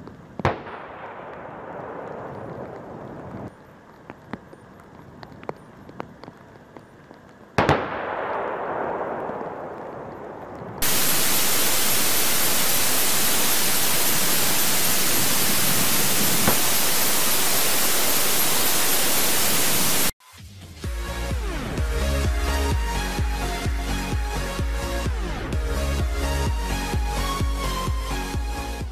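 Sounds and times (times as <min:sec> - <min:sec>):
loud static hiss: 0:00.0 - 0:20.2
distant tank gun shot: 0:07.6 - 0:10.4.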